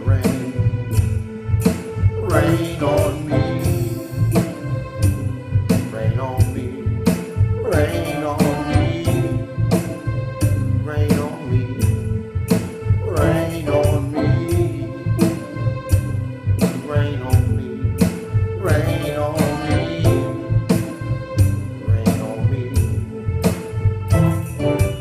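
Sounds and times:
man singing: 0.0s - 0.7s, 2.2s - 4.0s, 5.8s - 9.8s, 10.8s - 12.2s, 13.0s - 15.6s, 16.6s - 20.7s, 21.8s - 23.0s
music with steady beat: 0.0s - 25.0s.

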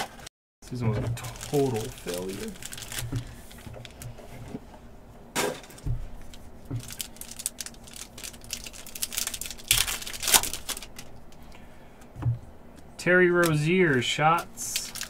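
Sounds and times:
plastic wrapper crinkling and tearing: 0.7s - 4.2s, 5.7s - 11.4s, 13.4s - 15.0s.

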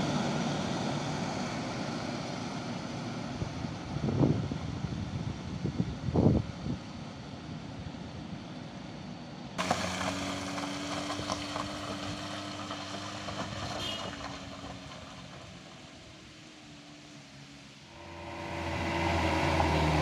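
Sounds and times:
minivan engine humming: 0.0s - 20.0s
wind buffeting microphone: 3.4s - 7.0s.

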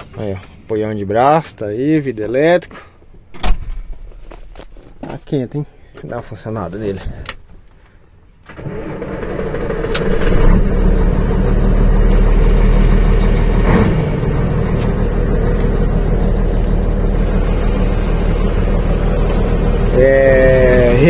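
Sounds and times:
diesel engine starting and idling: 8.4s - 21.0s.

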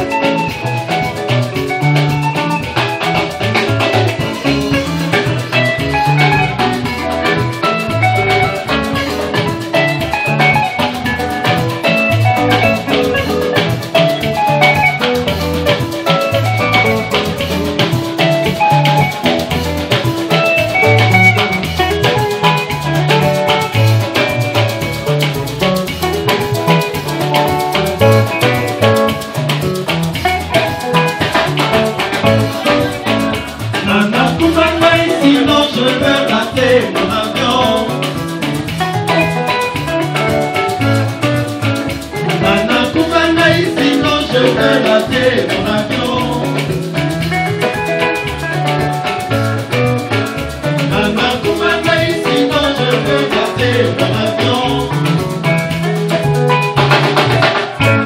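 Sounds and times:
bass guitar: 0.0s - 58.0s
drum kit: 0.0s - 58.0s
electric guitars: 0.0s - 58.0s
men singing: 32.3s - 38.2s, 42.3s - 46.9s, 50.8s - 55.3s.

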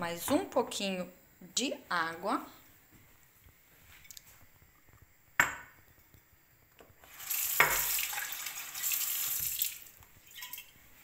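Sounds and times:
water pouring into a saucepan: 7.0s - 11.0s.

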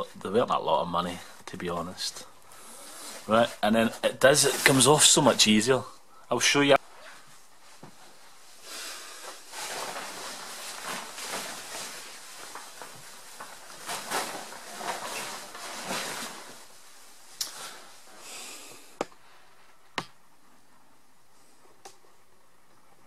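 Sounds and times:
stiff fabric rustling: 2.5s - 5.5s, 6.9s - 18.2s.

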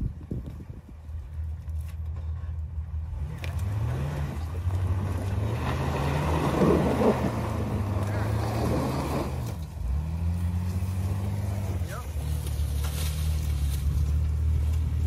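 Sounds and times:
engine revving under load: 3.0s - 15.0s
tyre and brush noise: 10.2s - 15.0s.

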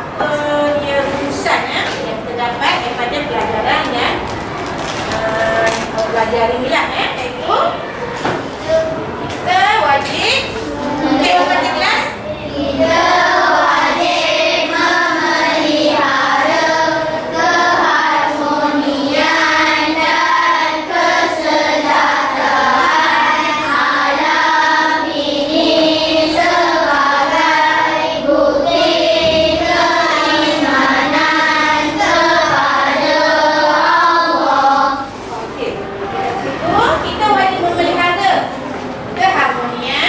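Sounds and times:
children singing in unison: 10.6s - 35.2s.

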